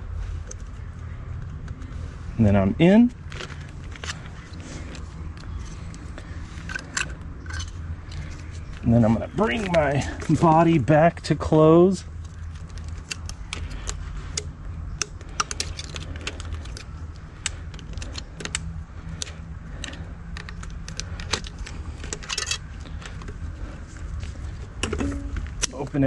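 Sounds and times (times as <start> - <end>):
steady low hum: 0.0 - 26.0
metallic clicks and rattles: 6.6 - 8.8, 12.1 - 23.4.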